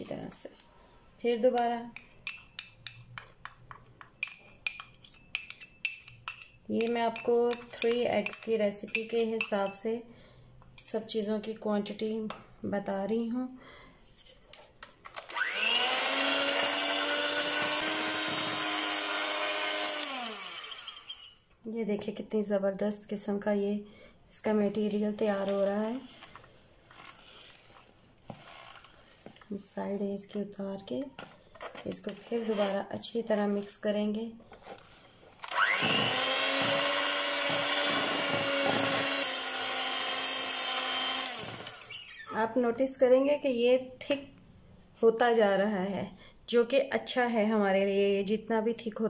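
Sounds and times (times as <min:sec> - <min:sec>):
electric hand mixer whine: 0:15.3 - 0:21.3, 0:35.5 - 0:42.3.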